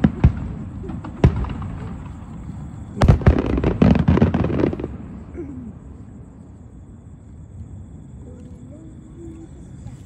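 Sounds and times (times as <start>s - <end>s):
fireworks bursting: 0.0s - 5.3s.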